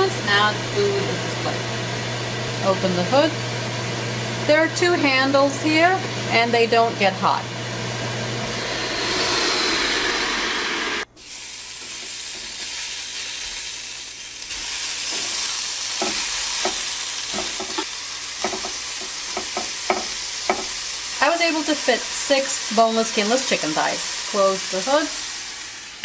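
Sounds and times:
chicken sizzling on grill grate: 11.2s - 26.0s.

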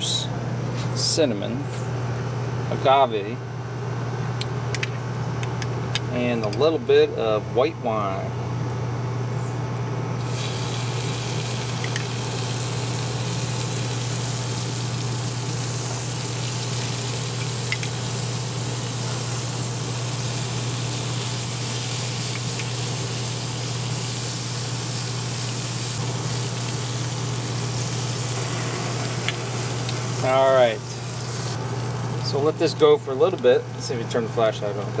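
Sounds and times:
low steady hum: 0.0s - 35.0s
sauce sizzling on a grill: 1.9s - 2.7s, 10.2s - 35.0s.

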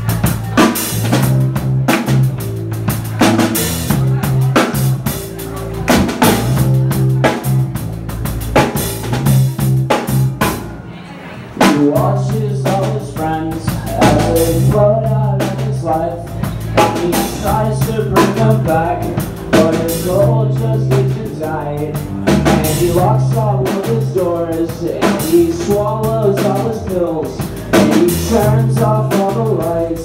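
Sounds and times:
drum kit beating: 0.0s - 10.8s, 11.6s - 30.0s
electric bass: 0.0s - 10.9s, 11.6s - 30.0s
person singing into a microphone: 11.6s - 30.0s.

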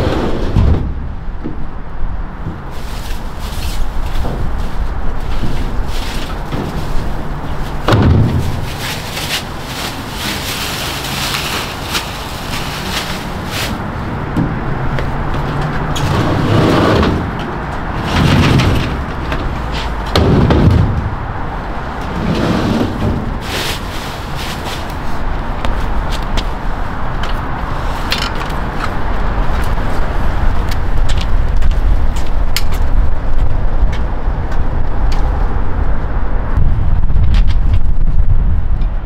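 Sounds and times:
loud bumps: 0.0s - 23.8s.

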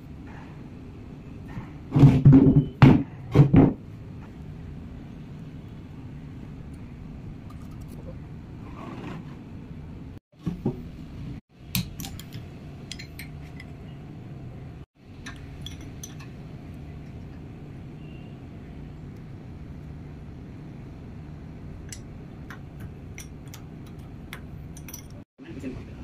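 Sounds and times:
metal clinks and taps: 21.9s - 25.2s.

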